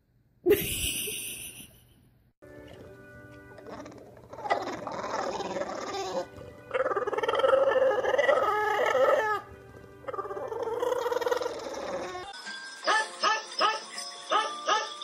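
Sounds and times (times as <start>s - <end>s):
dog howling: 3.7s - 9.5s, 10.1s - 12.3s.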